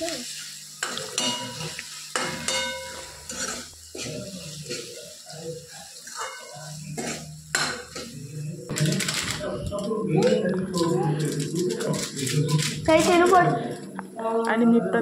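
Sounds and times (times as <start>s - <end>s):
masala sizzling in oil: 0.0s - 8.7s
steel ladle scraping a pan: 1.2s - 8.2s.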